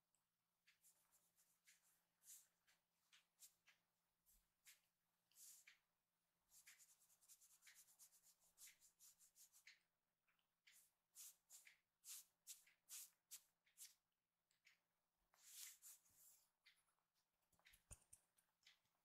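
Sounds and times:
scratchy rustling strokes: 0.8 - 5.8, 6.5 - 9.8, 10.7 - 14.0, 15.4 - 16.5.

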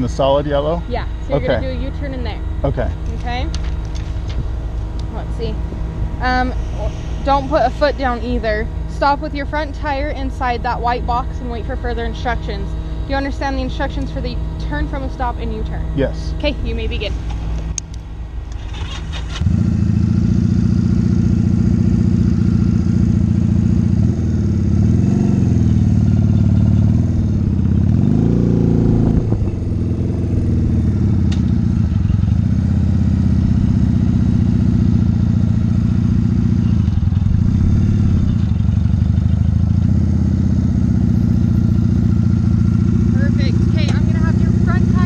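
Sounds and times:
motorcycle engine at low revs: 0.0 - 45.0.

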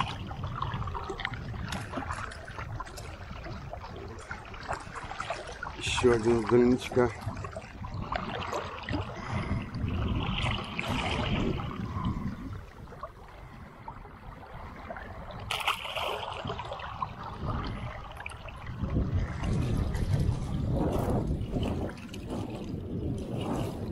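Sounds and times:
sharp splash: 10.2 - 11.7, 15.4 - 16.9
fish thrashing in water: 15.0 - 23.9.

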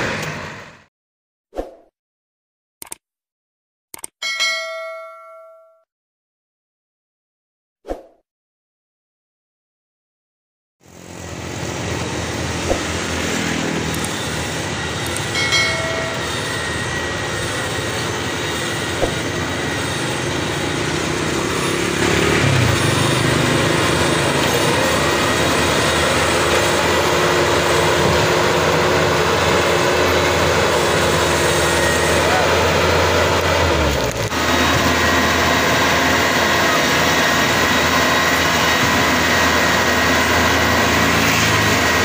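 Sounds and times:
combine harvester diesel engine: 0.0 - 0.9, 10.8 - 42.0.

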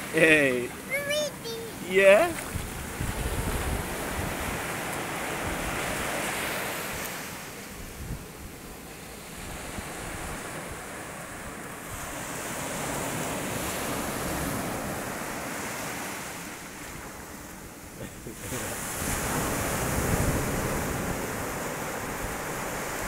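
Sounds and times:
wind buffeting microphone: 2.3 - 6.2, 7.7 - 8.7, 18.8 - 23.0
small surf breaking on sand: 18.4 - 23.0.

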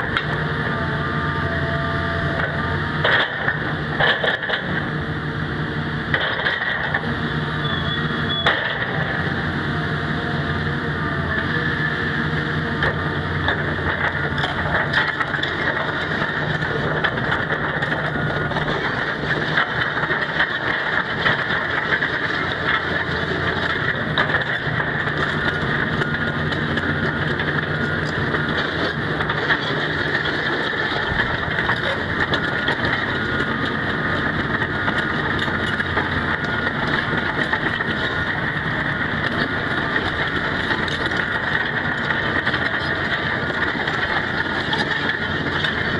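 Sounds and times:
excavator diesel engine running: 0.0 - 45.9
steel tracks clattering: 12.9 - 45.9.

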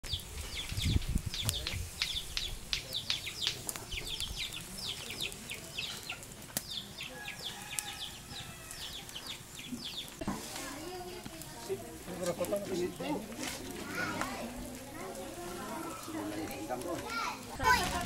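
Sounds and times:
birds chirping: 0.0 - 10.3, 11.0 - 18.0.

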